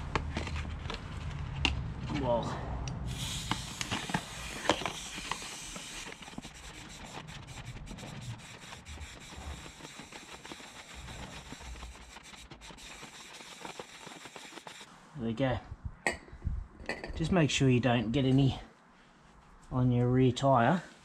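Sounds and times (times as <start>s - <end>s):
aerosol can spraying: 3.1s - 14.9s.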